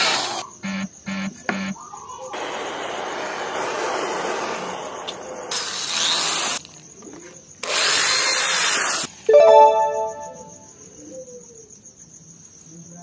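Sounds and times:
gas torch hissing: 0:02.3 - 0:06.7
electric drill boring into wood: 0:07.6 - 0:09.1.

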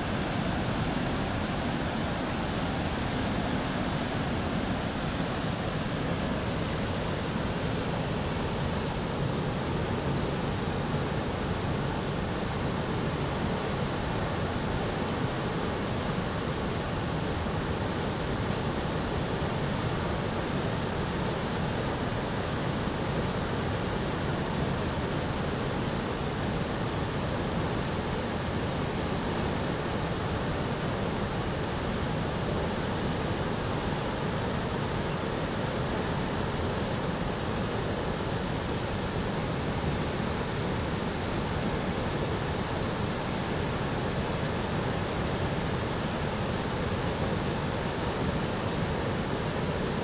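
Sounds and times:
river rushing over rapids: 0:00.0 - 0:50.0.

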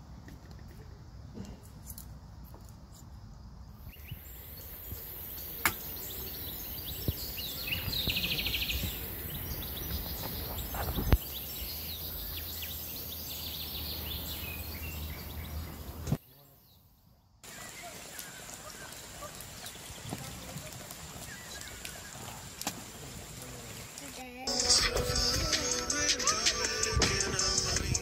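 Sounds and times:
small birds chirping: 0:00.4 - 0:26.1.

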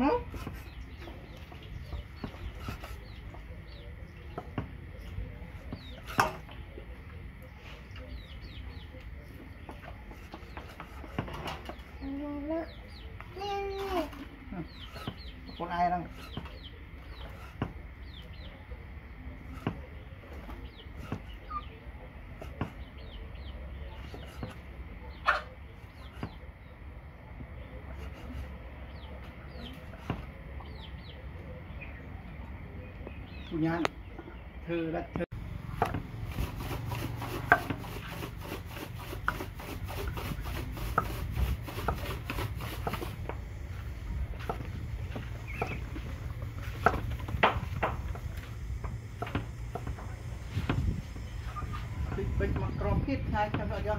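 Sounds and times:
birds chirping: 0:00.0 - 0:53.9
blade scraping: 0:35.7 - 0:53.9
cleaver chopping on wooden block: 0:35.8 - 0:36.1, 0:37.3 - 0:39.5.

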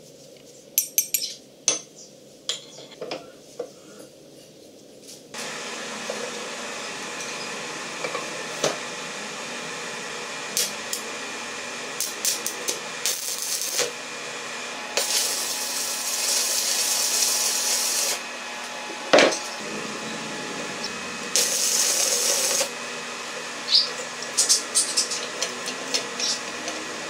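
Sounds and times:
welding arc crackling and sizzling: 0:10.5 - 0:11.2, 0:11.9 - 0:27.0.

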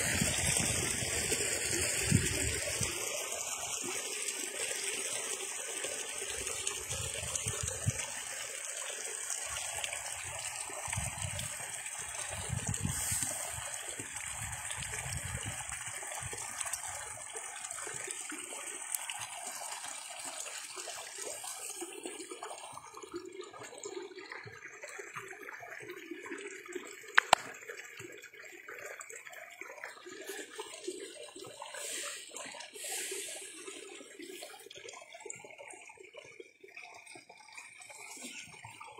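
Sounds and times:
stream water trickling: 0:00.0 - 0:38.9.

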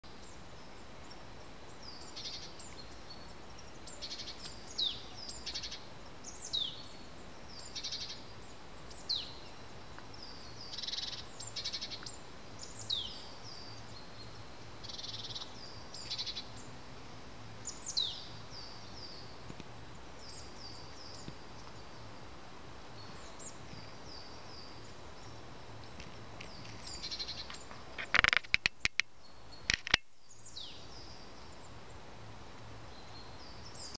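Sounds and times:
faint steady hiss: 0:00.0 - 0:33.9
small birds chirping: 0:00.0 - 0:33.9
sharp clicks: 0:27.4 - 0:29.1, 0:29.7 - 0:30.1.

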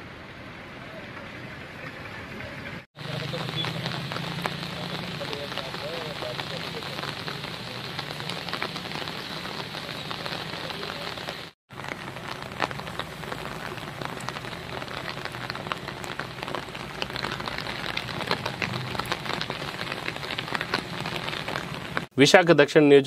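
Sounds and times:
rain on a wet road: 0:00.1 - 0:22.1.

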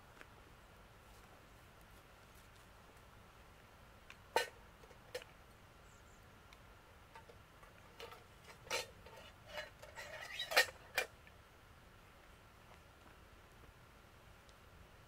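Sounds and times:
rustling: 0:01.0 - 0:05.4, 0:07.1 - 0:11.2
camping gear clicks and knocks: 0:07.1 - 0:11.2.

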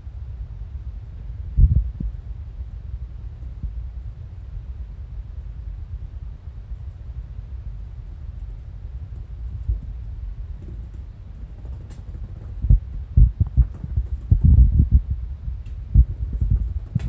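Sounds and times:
low hum: 0:00.0 - 0:17.0
kittens' paws thudding on mats: 0:08.5 - 0:17.0.

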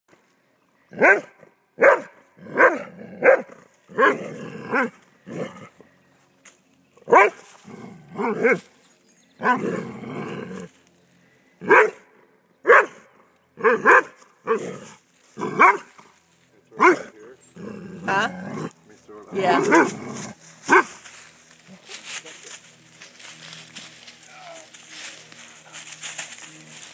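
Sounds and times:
dog barking: 0:01.0 - 0:04.9, 0:07.1 - 0:07.4, 0:11.6 - 0:12.0, 0:12.6 - 0:14.6, 0:15.5 - 0:15.9, 0:16.8 - 0:17.1, 0:19.5 - 0:19.9, 0:20.6 - 0:21.0.

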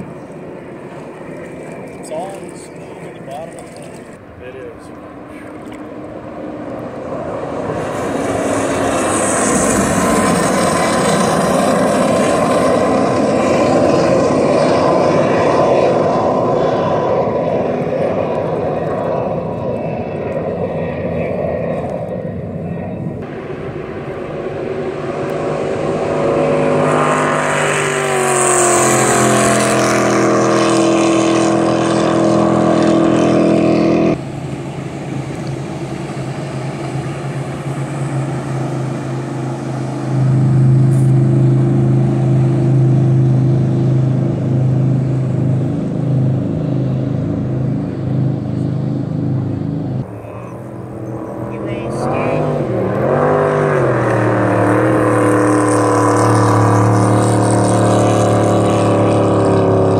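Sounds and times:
jet boat engines: 0:00.0 - 0:59.9
water rushing and spray: 0:23.2 - 0:48.3.

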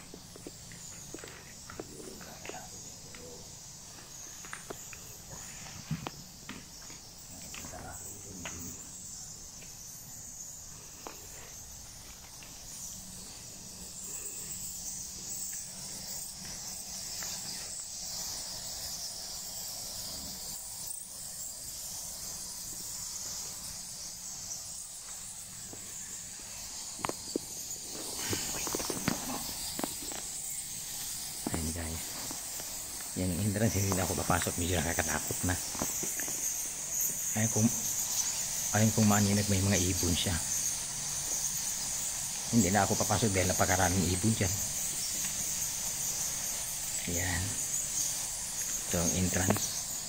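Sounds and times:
footsteps: 0:00.0 - 0:08.7, 0:25.0 - 0:39.3
insects chirring: 0:00.0 - 0:50.0.

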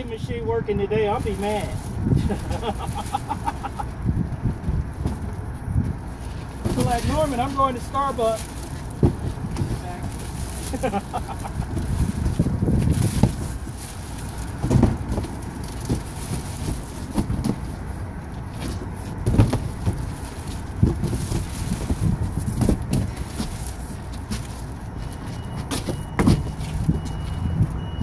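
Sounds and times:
wind buffeting microphone: 0:00.0 - 0:28.0
cardboard boxes knocking and rustling: 0:01.2 - 0:28.0.

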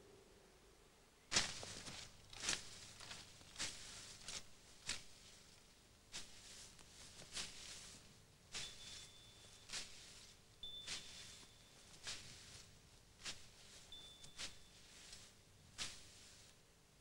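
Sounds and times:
weeds and grass rustling: 0:01.3 - 0:16.6.

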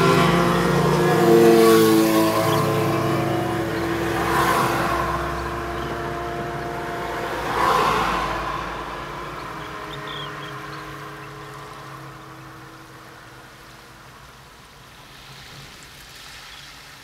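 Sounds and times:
motor engine droning: 0:00.0 - 0:14.2
small waves washing onto sand: 0:13.4 - 0:17.0.

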